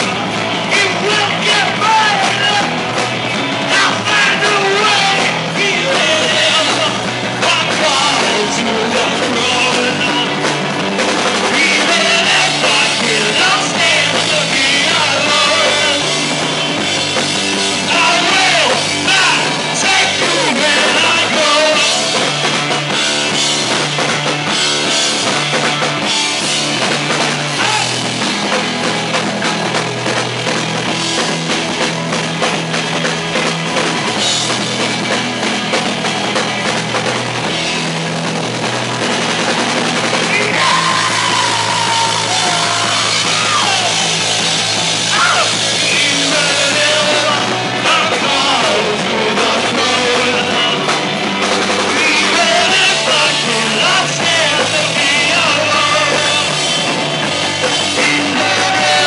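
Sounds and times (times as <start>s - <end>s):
drum kit: 0.0s - 59.0s
rock band playing live: 0.0s - 59.0s.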